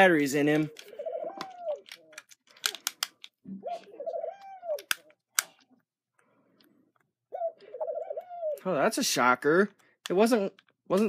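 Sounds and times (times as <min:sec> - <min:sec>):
bird cooing: 0:00.7 - 0:02.1, 0:03.6 - 0:04.9, 0:07.3 - 0:08.6
plastic toy clicks and taps: 0:00.7 - 0:03.4.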